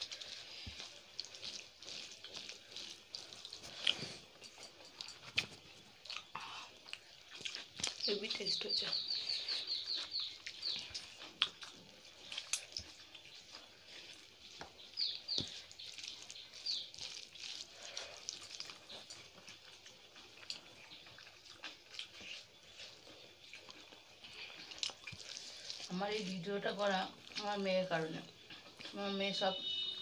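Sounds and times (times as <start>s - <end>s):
chewing and lip smacks: 0.0s - 29.0s
bird chirping: 7.9s - 17.6s, 26.9s - 30.0s.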